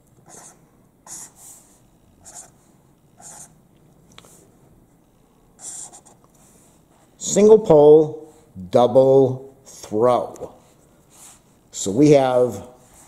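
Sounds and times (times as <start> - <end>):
marker scratching on paper: 0.2 - 2.6, 3.2 - 3.6, 5.6 - 7.1.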